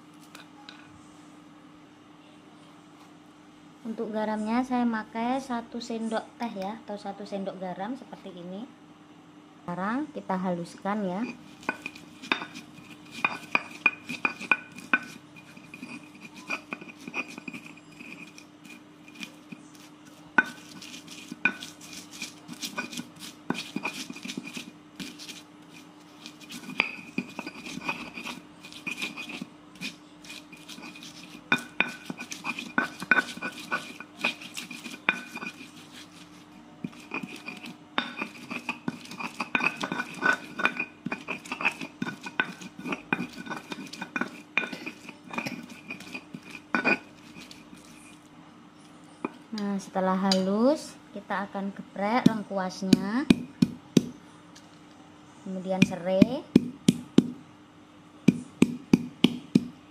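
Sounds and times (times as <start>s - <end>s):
faint steady hum: 0.0s - 59.9s
stone pestle knocking and scraping: 11.2s - 48.2s, 52.2s - 54.2s, 55.8s - 57.4s, 58.3s - 59.8s.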